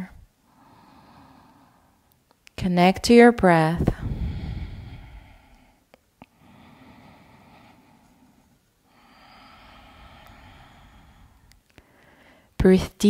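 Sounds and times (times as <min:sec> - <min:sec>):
woman breathing softly: 0:00.0 - 0:02.1, 0:03.9 - 0:12.6
faint clicks: 0:11.3 - 0:12.2.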